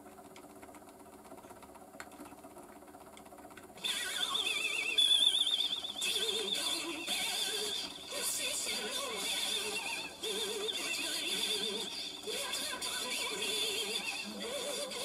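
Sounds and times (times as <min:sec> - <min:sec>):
faint motor hum: 0:00.0 - 0:15.0
record playing wobbly music: 0:03.8 - 0:15.0.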